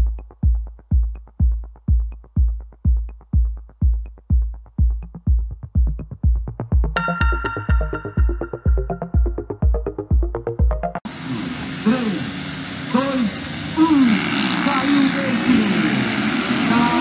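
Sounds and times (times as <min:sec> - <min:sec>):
deep kick drum: 0:00.0 - 0:11.0
electronic dance music: 0:00.0 - 0:11.1
bright synth chord: 0:07.0 - 0:11.0.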